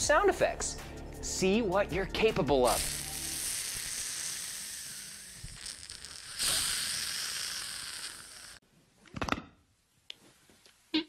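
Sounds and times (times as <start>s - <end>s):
man making hissing sound with mouth: 2.6s - 8.6s.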